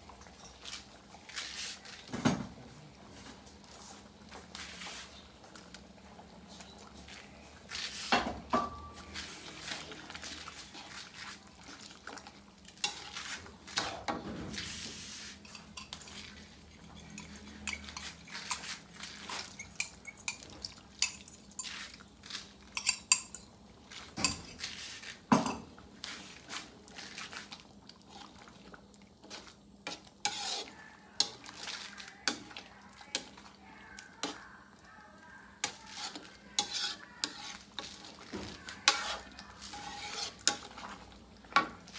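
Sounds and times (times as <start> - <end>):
spatula scraping metal wok: 12.8 - 19.6, 29.8 - 32.5, 35.6 - 41.0.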